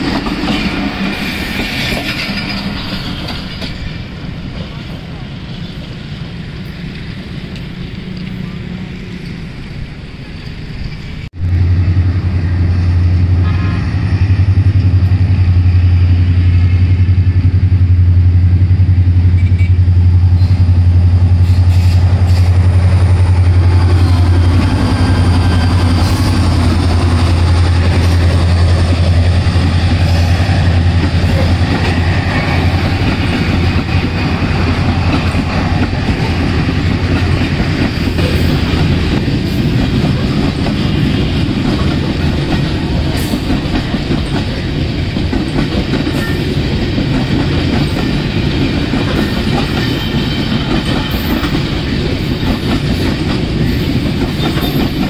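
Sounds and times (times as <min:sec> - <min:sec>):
freight wagons rumbling on rails: 0:00.0 - 0:55.0
locomotive engine droning: 0:05.8 - 0:46.4.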